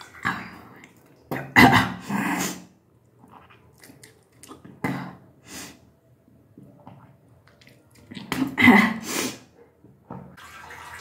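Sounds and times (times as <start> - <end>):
person retching: 1.3 - 2.6.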